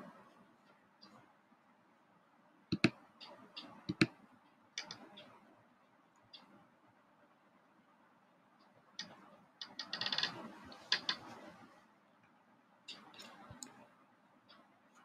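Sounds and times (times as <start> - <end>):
soft clicks and taps: 2.7 - 5.3, 12.2 - 13.8.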